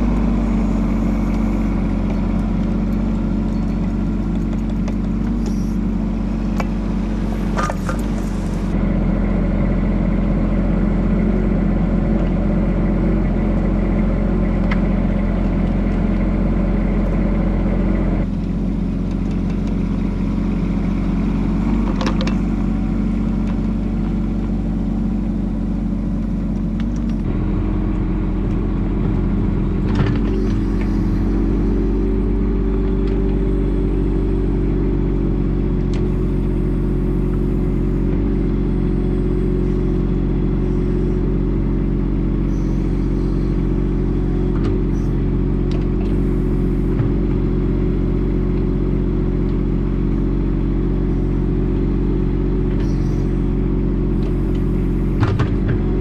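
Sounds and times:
mini excavator diesel engine: 0.0s - 56.0s.

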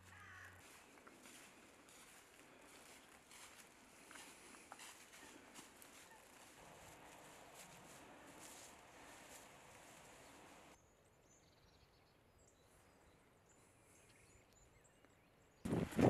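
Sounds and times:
footsteps through dry leaves: 0.0s - 10.8s, 15.7s - 16.0s.

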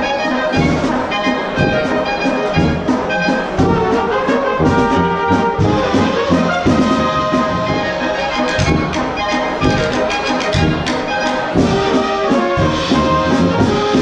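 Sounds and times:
brass band playing a waltz: 0.0s - 14.0s.

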